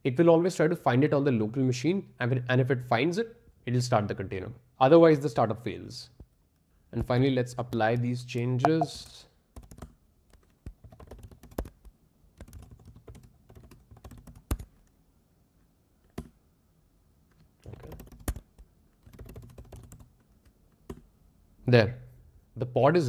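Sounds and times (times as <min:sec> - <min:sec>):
keyboard typing: 0:09.6 - 0:14.7, 0:17.4 - 0:21.0.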